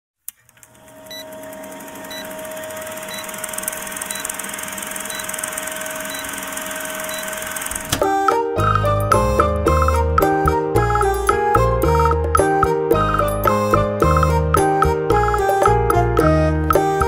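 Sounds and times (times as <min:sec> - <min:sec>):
film projector whirring and rattling: 0:00.3 - 0:08.1
music: 0:08.0 - 0:17.0.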